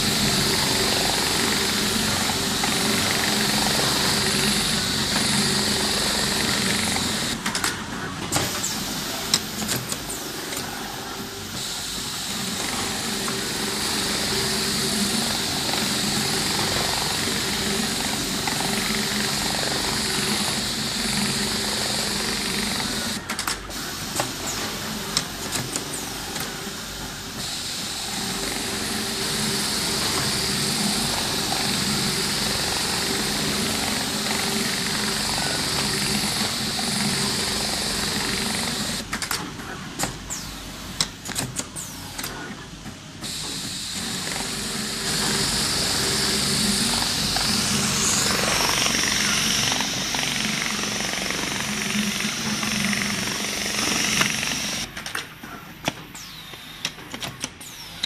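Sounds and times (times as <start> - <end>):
sewing machines humming: 0.0 - 40.8, 43.2 - 55.0
sharp machine clicks: 28.2 - 42.4, 44.0 - 55.3.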